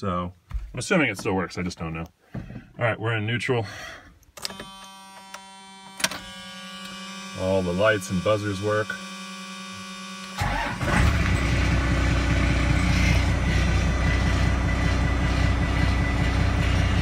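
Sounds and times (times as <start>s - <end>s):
dash warning buzzer: 4.4s - 10.7s
starter cranking engine: 10.3s - 17.0s
diesel engine idling: 10.4s - 17.0s.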